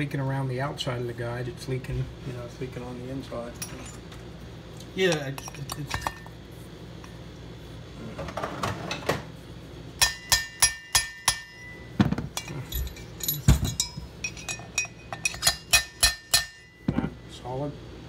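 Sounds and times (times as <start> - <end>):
steel rod clinking on metal: 10.0 - 16.9.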